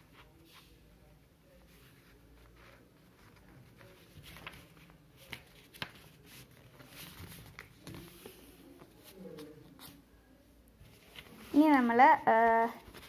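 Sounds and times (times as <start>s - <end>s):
paper rustling as it is folded: 0.0s - 10.2s, 10.8s - 13.0s.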